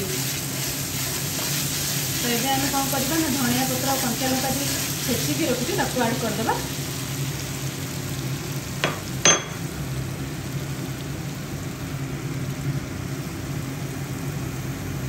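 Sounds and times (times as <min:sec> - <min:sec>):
masala sizzling: 0:00.0 - 0:15.0
steel spatula clinking on pan: 0:08.8 - 0:09.6.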